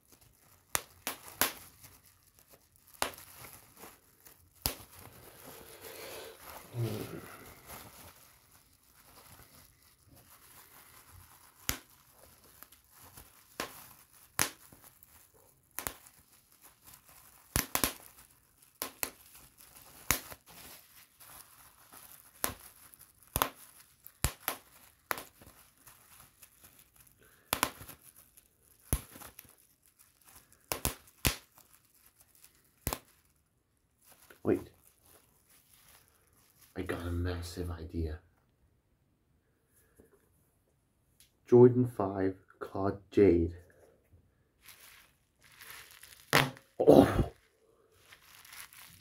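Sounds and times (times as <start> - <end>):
bubble wrap pops: 0.0 - 37.2, 44.6 - 49.0
bubble wrap crinkling: 0.0 - 38.2, 43.6 - 49.0.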